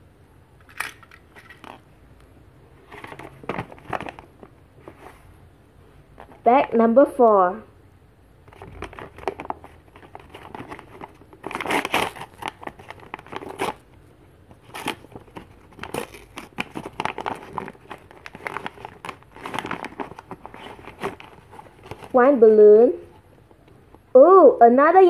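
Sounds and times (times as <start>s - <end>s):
paper tearing and crinkling: 8.6s - 13.8s, 14.5s - 22.2s.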